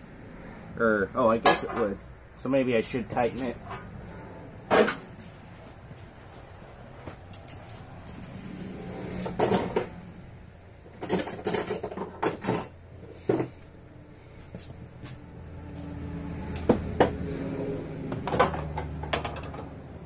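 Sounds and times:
hand tools clinking on metal: 7.1s - 10.0s, 11.0s - 12.8s, 18.4s - 19.7s.

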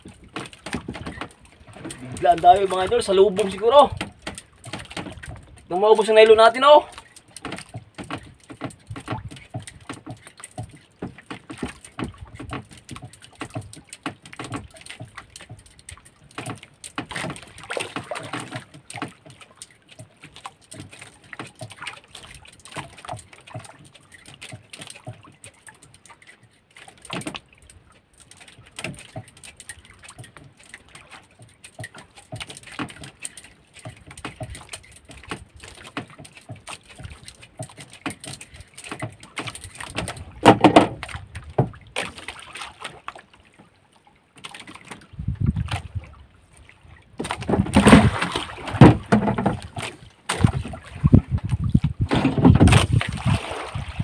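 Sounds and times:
water splashing: 0.0s - 54.0s
knocks on boat hull: 39.9s - 41.8s, 47.2s - 49.8s.

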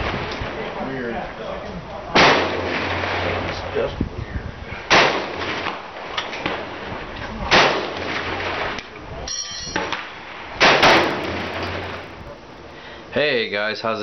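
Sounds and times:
rifle shots: 4.9s - 5.3s, 10.6s - 12.1s.

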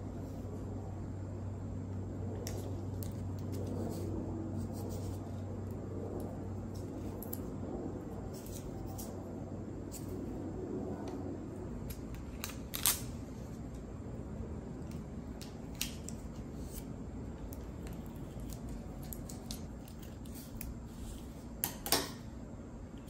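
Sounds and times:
low background hum: 0.0s - 23.0s.

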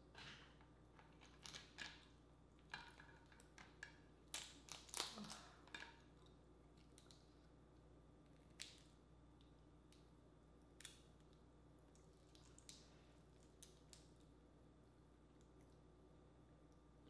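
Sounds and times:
crab shell cracking: 4.3s - 5.9s, 8.4s - 9.0s.

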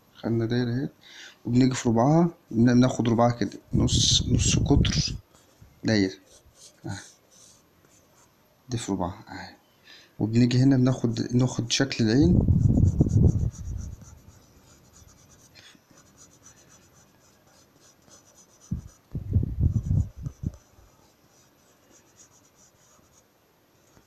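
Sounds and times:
pencil scratching on paper: 6.2s - 8.3s, 12.4s - 19.1s, 19.7s - 23.2s.

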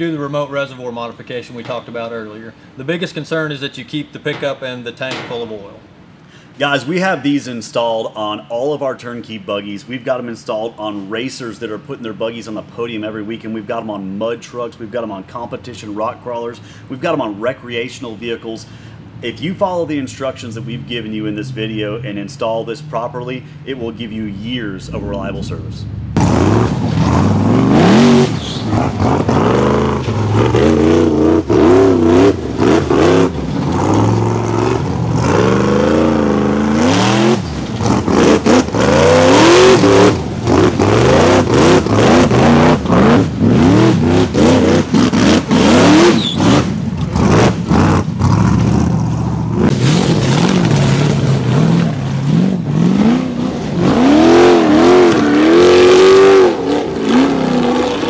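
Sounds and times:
buggy engines revving: 18.6s - 58.0s.

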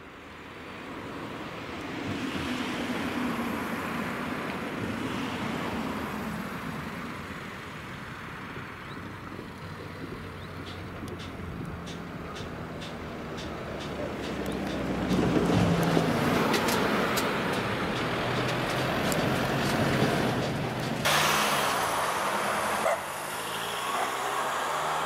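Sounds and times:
cars driving over level crossing: 7.2s - 25.0s.

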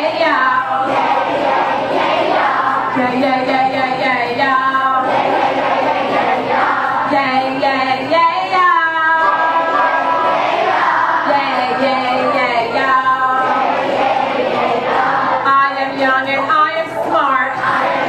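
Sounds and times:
woman singing into microphone: 0.0s - 1.0s, 2.8s - 5.1s, 6.4s - 10.1s, 11.2s - 13.8s, 15.3s - 18.0s
children singing: 0.0s - 18.0s.

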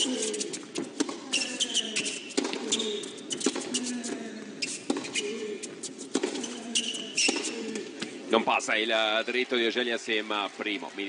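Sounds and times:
racket hitting ball: 0.0s - 5.4s, 6.0s - 8.0s
shoes squeaking on court: 0.0s - 8.1s.

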